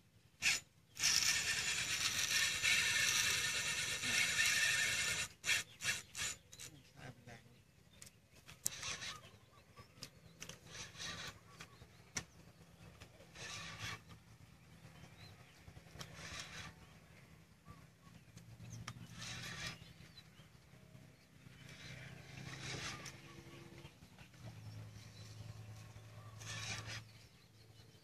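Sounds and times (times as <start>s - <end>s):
spinning reel line running: 0.4s - 6.4s, 8.6s - 9.2s, 10.4s - 11.5s, 13.3s - 14.2s, 15.7s - 16.8s, 19.1s - 19.8s, 21.6s - 23.8s, 25.9s - 27.1s
sharp clicks: 8.0s - 9.4s, 10.0s - 14.2s, 15.8s - 16.8s, 18.1s - 20.1s.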